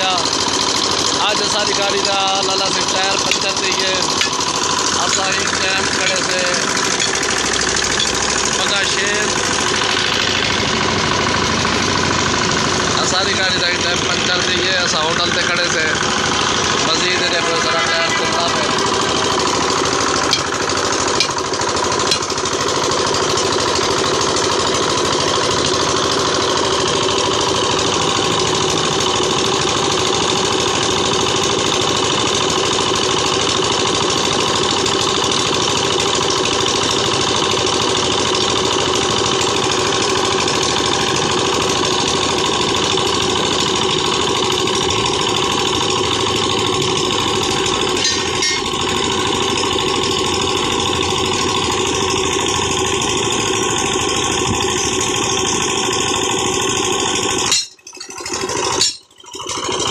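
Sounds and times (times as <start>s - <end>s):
engine droning: 0.0s - 59.9s.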